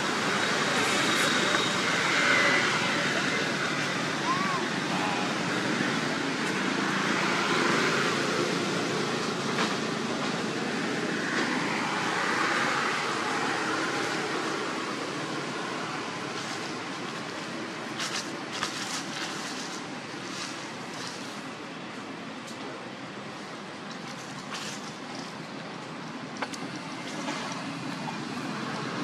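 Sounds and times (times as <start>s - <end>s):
rushing background noise: 0.0s - 29.0s
dry leaves crackling: 16.2s - 21.6s, 24.0s - 25.4s.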